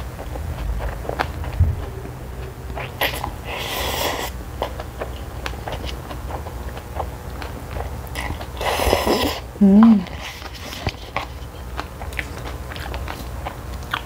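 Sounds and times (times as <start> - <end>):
wet chewing and mouth clicks: 0.0 - 14.0
person slurping noodles: 2.8 - 4.4, 8.6 - 10.3.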